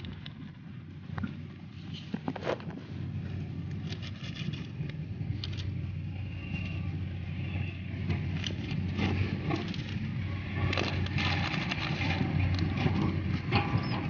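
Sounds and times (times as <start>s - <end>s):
engine humming: 0.0s - 14.0s.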